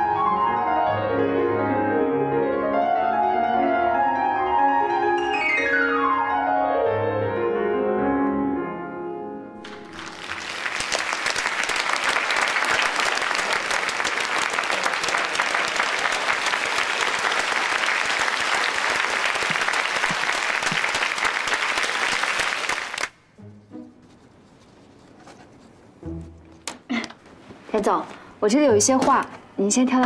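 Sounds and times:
grand piano notes ringing: 0.2s - 10.2s
audience applauding: 9.6s - 23.2s.

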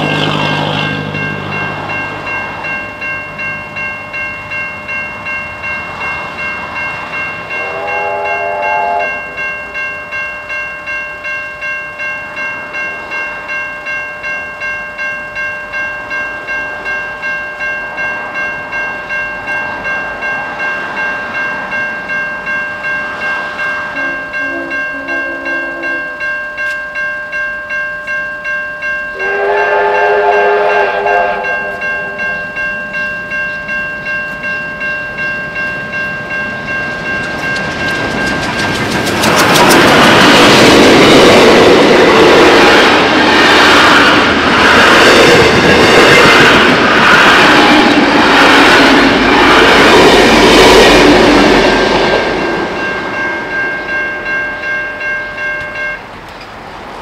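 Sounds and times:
level crossing bells ringing: 0.0s - 56.2s
approaching steam train: 0.0s - 57.0s
steam locomotive whistle blast: 7.5s - 9.4s, 24.0s - 26.1s, 29.2s - 32.4s.

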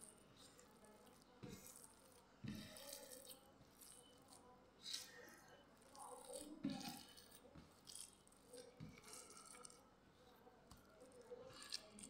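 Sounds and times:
hands kneading wet minced meat: 0.0s - 12.0s.

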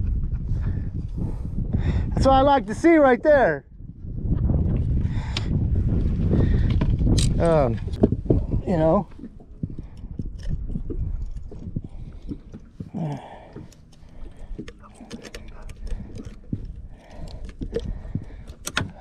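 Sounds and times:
wind rumble on microphone: 0.0s - 19.0s
handling clicks and knocks: 12.2s - 19.0s.

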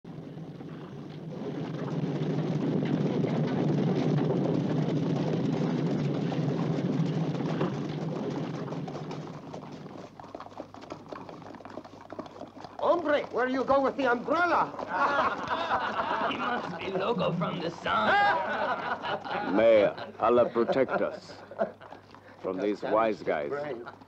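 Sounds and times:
horses galloping on stony ground: 0.1s - 24.0s.

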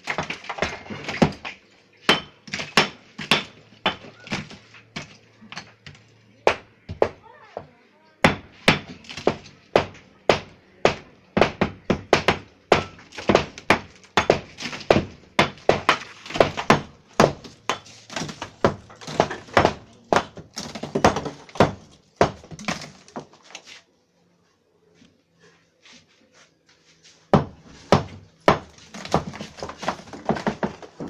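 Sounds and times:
brick chunks clattering onto rubble: 0.0s - 6.0s, 12.9s - 23.4s, 28.5s - 31.0s.

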